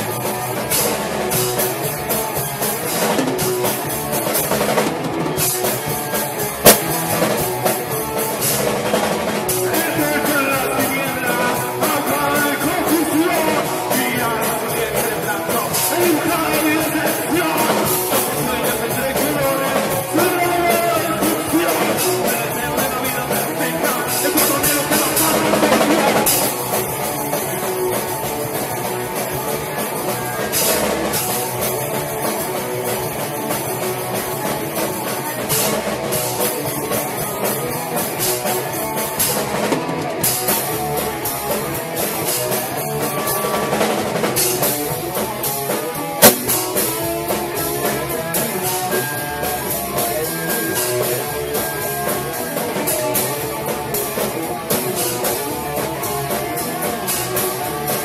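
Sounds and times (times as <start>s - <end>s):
bass guitar: 0.0s - 58.0s
drum kit: 0.0s - 58.0s
electric guitars: 0.0s - 58.0s
sharp loud crack: 6.7s - 7.2s, 46.2s - 46.9s.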